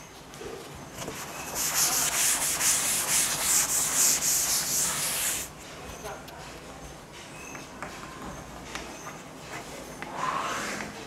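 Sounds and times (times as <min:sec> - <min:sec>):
sponge scrubbing a chalkboard: 0:01.0 - 0:05.5.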